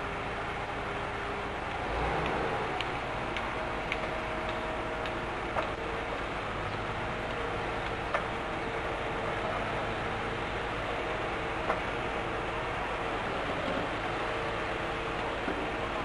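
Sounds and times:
steady machinery noise: 0.0s - 16.0s
light clicks: 1.7s - 5.8s.

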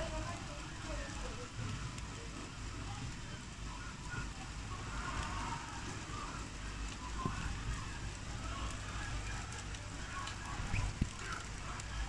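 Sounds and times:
steady rain: 0.0s - 12.0s.

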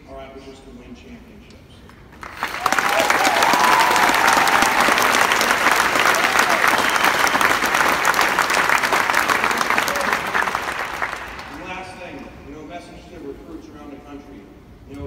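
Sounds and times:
audience applauding: 2.2s - 11.9s.

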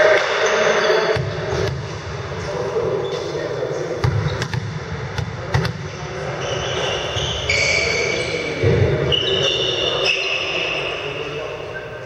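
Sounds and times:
high squealing tones: 6.3s - 11.5s.

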